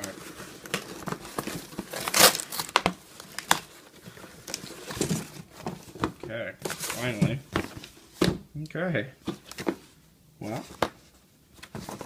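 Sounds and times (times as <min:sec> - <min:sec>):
cardboard scraping and tearing: 0:00.0 - 0:02.8.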